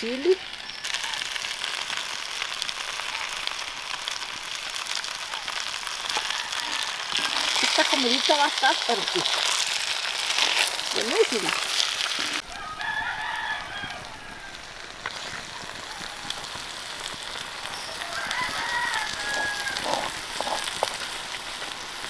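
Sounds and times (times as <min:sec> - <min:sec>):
rooster crowing: 0:06.0 - 0:07.4, 0:12.4 - 0:14.8, 0:17.8 - 0:20.6.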